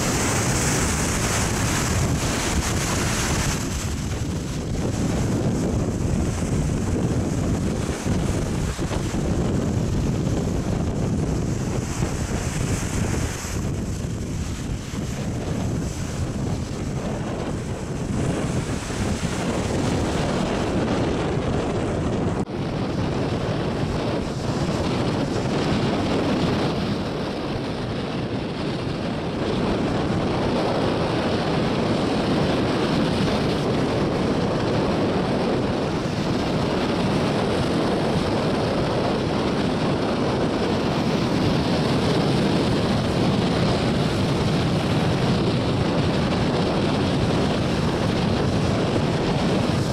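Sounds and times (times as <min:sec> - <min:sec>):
surf breaking on rocks: 0:00.0 - 0:26.9
wind buffeting microphone: 0:00.0 - 0:49.9.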